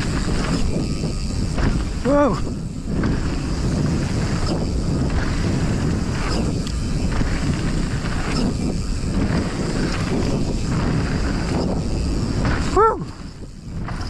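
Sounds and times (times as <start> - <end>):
bike tyres rumbling on dirt: 0.0 - 14.0
wind rushing over microphone: 0.0 - 14.0.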